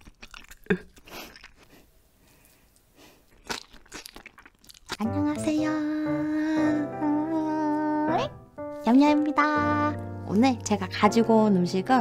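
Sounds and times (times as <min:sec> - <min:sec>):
person chewing crunchy food: 0:00.0 - 0:05.1.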